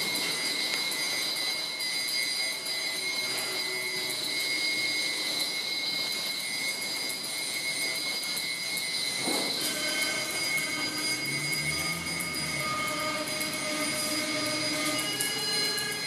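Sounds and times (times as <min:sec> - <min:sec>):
steady high-pitched tones: 0:00.0 - 0:16.0
hissing grinding noise: 0:09.0 - 0:16.0
low swelling tone: 0:09.4 - 0:16.0.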